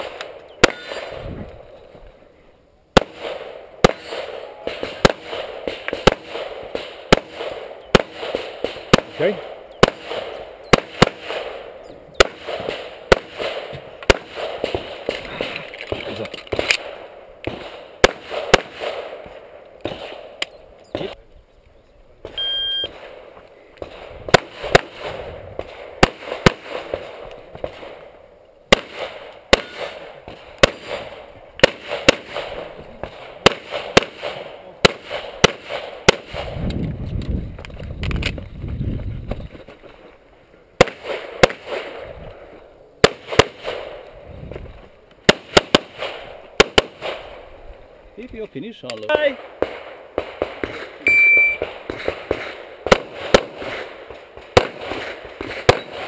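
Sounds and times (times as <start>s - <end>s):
pistol shots: 0.0s - 1.4s, 3.0s - 21.2s, 22.9s - 28.1s, 28.7s - 36.6s, 40.8s - 42.1s, 43.0s - 44.0s, 45.2s - 47.4s, 49.3s - 56.0s
short electronic beep: 22.4s - 22.9s, 51.0s - 51.6s.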